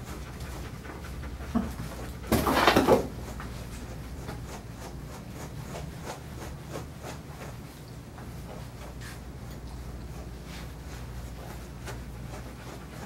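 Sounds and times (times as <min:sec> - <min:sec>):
brush scratching dog's coat: 0:03.1 - 0:13.0.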